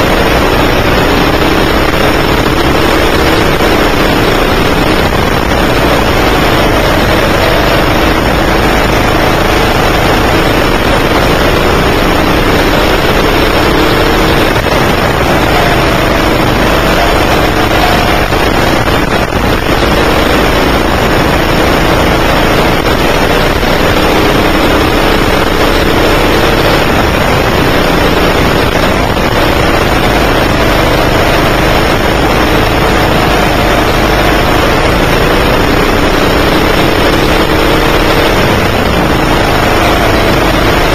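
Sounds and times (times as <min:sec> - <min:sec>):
kart engine revving: 0:00.0 - 0:40.9.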